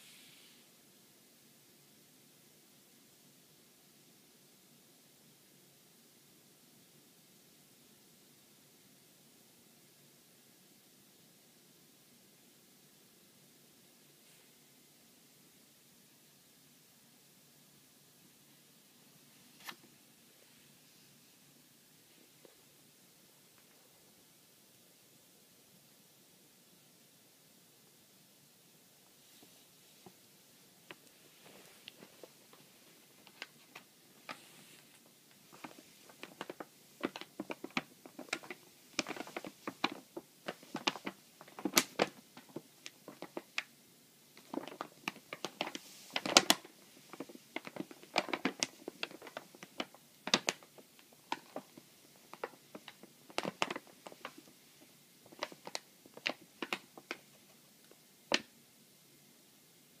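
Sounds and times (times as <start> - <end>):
paper bag crinkling: 31.4 - 43.6, 44.4 - 54.5.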